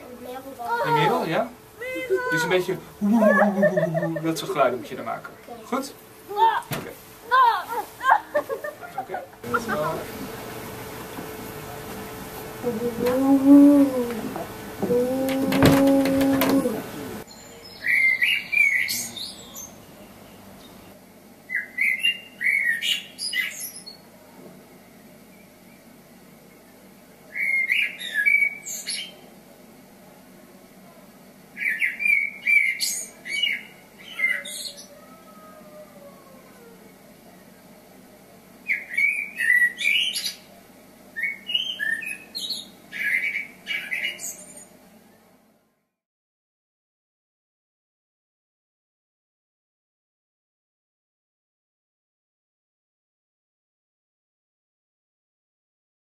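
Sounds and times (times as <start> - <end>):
blackbird singing: 16.6 - 20.9, 21.5 - 24.0, 27.3 - 29.2, 31.6 - 35.8, 38.6 - 40.5, 41.2 - 44.7.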